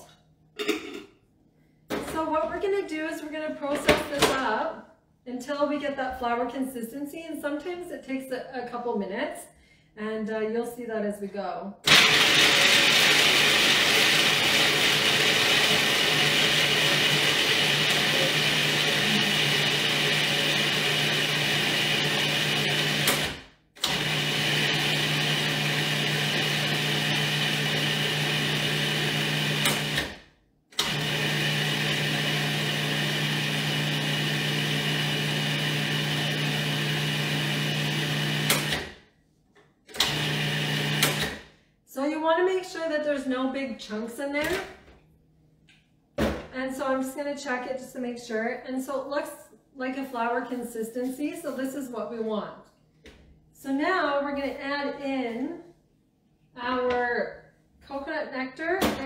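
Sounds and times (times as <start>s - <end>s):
food processor motor grinding: 11.9s - 30.2s, 30.8s - 39.0s, 39.9s - 41.5s.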